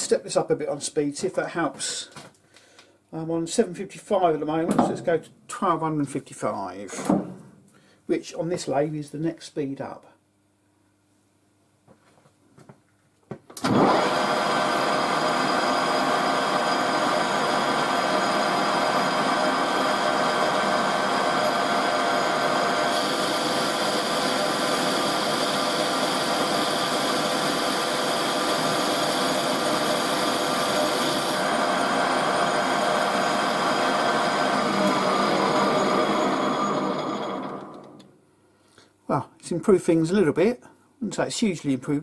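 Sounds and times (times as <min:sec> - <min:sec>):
lathe whining: 0:13.6 - 0:38.1.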